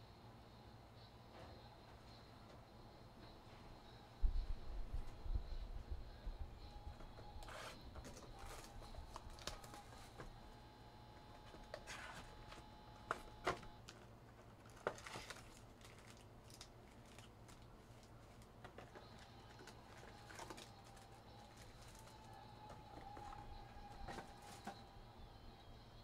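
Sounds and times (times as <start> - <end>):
cardboard box and foil packs rustling: 6.9 - 10.4, 11.2 - 24.9.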